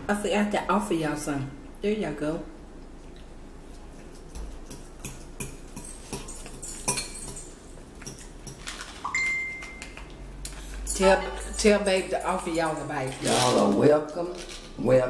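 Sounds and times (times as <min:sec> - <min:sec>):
metal fork clinking on bowl: 0:04.7 - 0:08.6.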